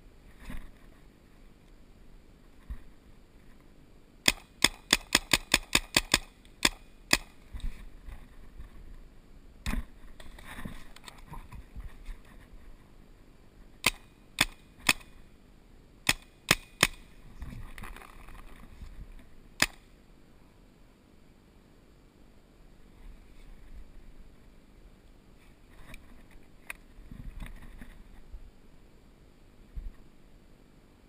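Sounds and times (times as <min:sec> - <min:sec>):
paintball markers firing: 0:04.2 - 0:07.4, 0:13.8 - 0:15.1, 0:16.0 - 0:17.1, 0:19.6 - 0:19.8.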